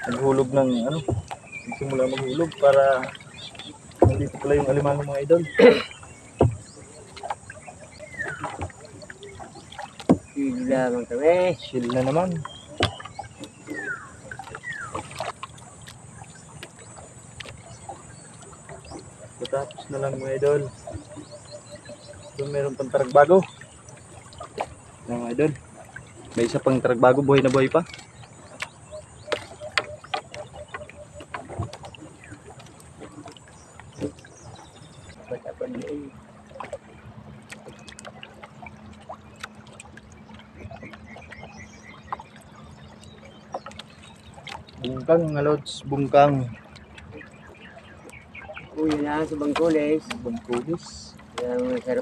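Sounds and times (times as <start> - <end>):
small splashes: 0.0 - 52.0
water lapping: 0.0 - 52.0
knocks against wooden hull: 0.8 - 3.2, 3.9 - 7.4, 9.8 - 10.4, 11.8 - 15.4.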